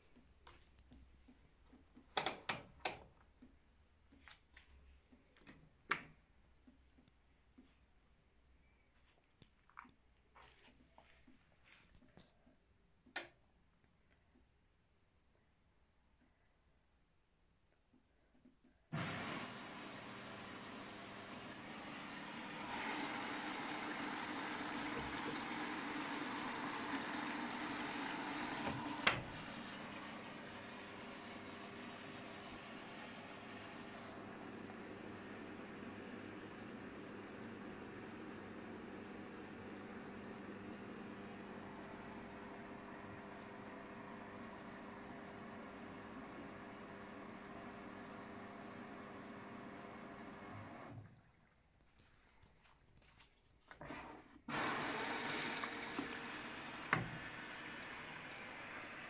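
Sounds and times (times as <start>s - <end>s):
washing machine water hissing: 21.7s - 34.3s.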